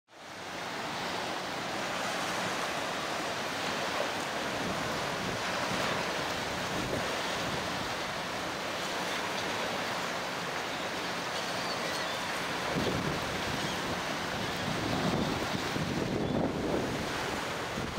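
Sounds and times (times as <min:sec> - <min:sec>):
water splashing against wooden dock: 0:00.3 - 0:17.9
storm wind on microphone: 0:12.7 - 0:17.9.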